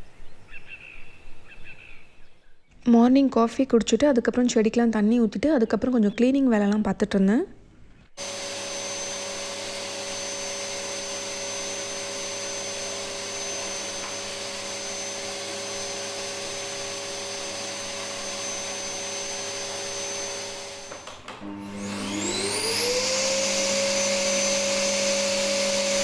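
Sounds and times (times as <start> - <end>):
vacuum cleaner running: 8.2 - 26.0.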